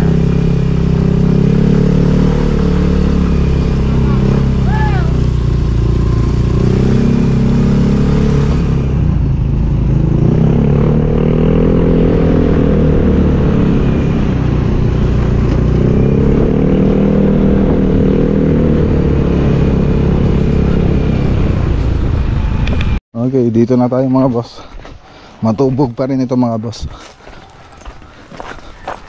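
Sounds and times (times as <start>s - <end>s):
motorcycle engine revving: 0.0s - 23.0s.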